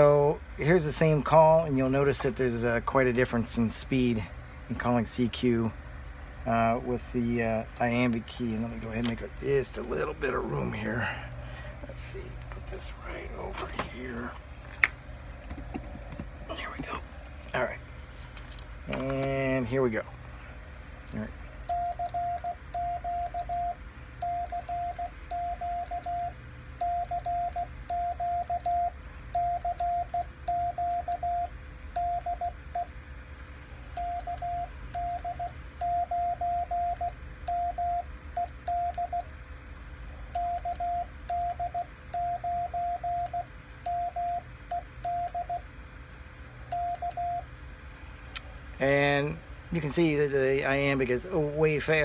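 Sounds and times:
morse code beeps: 21.7 - 32.9, 34.0 - 39.3, 40.4 - 45.6, 46.7 - 47.5.

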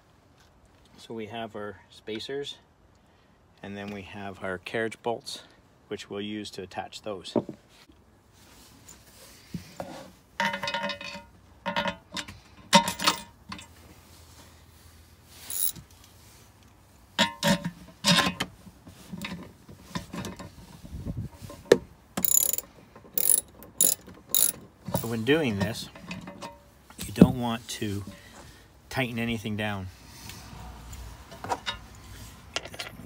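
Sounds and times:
metal parts clinking: 10.4 - 13.7, 15.4 - 15.8, 22.2 - 26.6
socket ratchet clicking: 15.5 - 15.8, 22.2 - 24.6.

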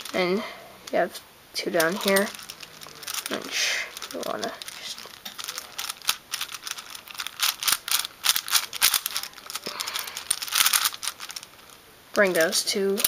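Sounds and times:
puzzle cube clicking: 4.0 - 9.6, 10.2 - 11.7.

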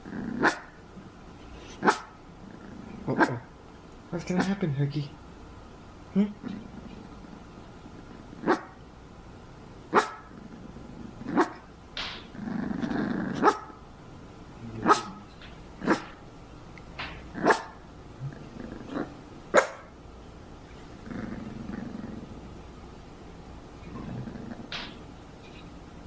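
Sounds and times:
puppy growling: 0.0 - 0.8, 1.8 - 3.5, 6.4 - 7.4, 10.0 - 11.7, 12.3 - 13.7, 14.6 - 16.2, 17.3 - 19.8, 20.9 - 22.6, 23.8 - 25.0
puppy barking: 0.4 - 0.7, 1.8 - 2.2, 8.4 - 8.8, 9.9 - 10.3, 11.4 - 11.6, 13.4 - 13.8, 14.8 - 15.2, 17.4 - 17.8, 19.6 - 19.9.

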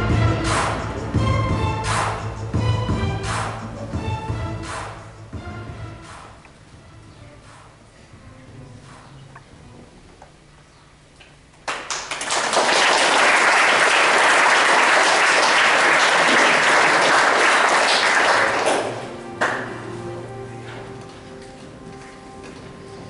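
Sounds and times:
quiet music: 0.0 - 11.4, 17.5 - 23.0
audience applauding: 11.6 - 19.7.

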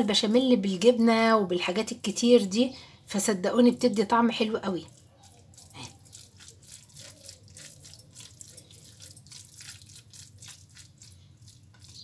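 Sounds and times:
spatula stirring wet mix: 4.7 - 12.0.

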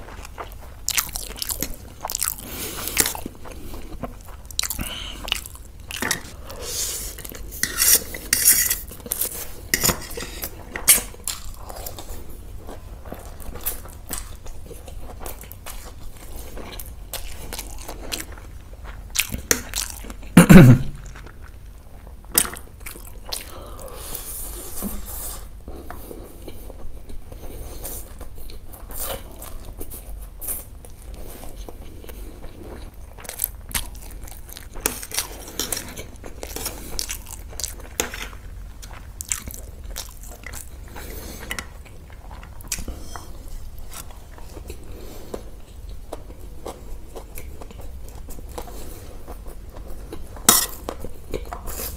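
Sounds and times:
person crunching fried food: 0.0 - 9.7, 30.5 - 42.9.

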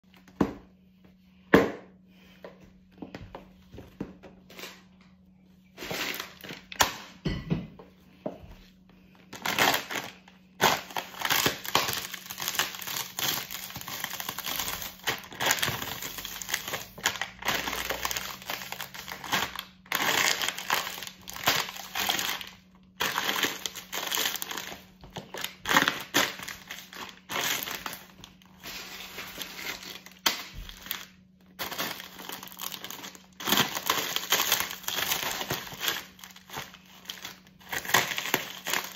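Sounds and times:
plastic packaging crinkling: 5.6 - 7.2, 9.2 - 38.9
boots crunching crisps: 9.3 - 38.9.

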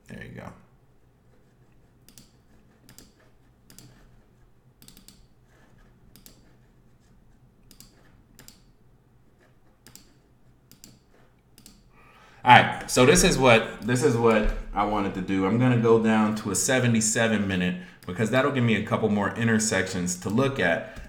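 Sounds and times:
computer mouse clicking: 1.4 - 11.9, 20.2 - 21.0.

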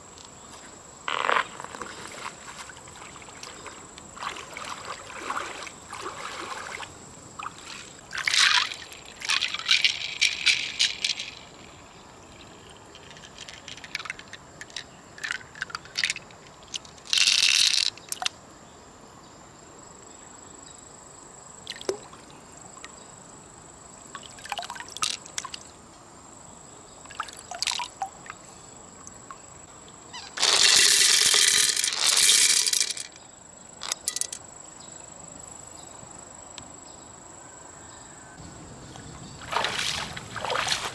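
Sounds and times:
river water splashing and trickling: 0.6 - 18.3, 21.6 - 23.0, 24.0 - 25.8, 27.0 - 28.4, 38.8 - 40.9.

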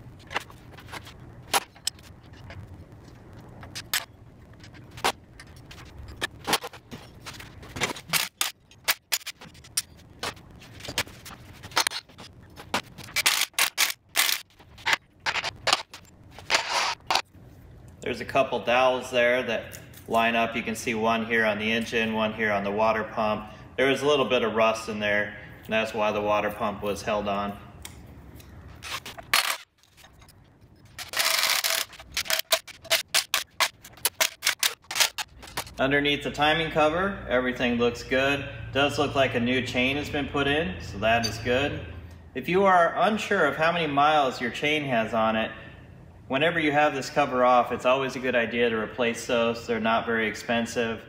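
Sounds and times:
metal tools clinking on steel cart: 41.1 - 41.6.

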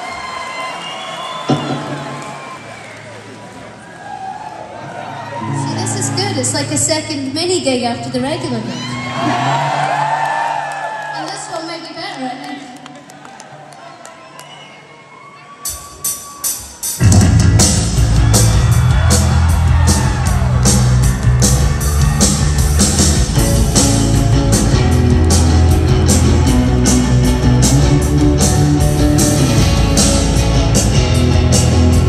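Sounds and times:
live rock band playing: 15.7 - 32.0.

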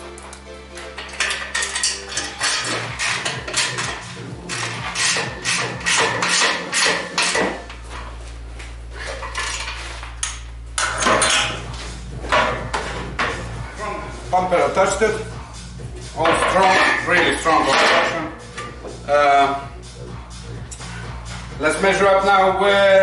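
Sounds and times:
metal clanks and knocks: 0.8 - 8.1, 9.0 - 13.6, 16.1 - 19.1.

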